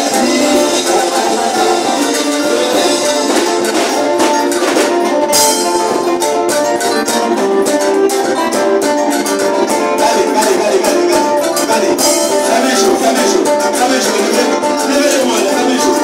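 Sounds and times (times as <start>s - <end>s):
man singing into a microphone: 0.0s - 5.2s, 9.5s - 16.0s
drums: 0.0s - 16.0s
electric guitar: 0.0s - 16.0s
keyboard: 0.0s - 16.0s.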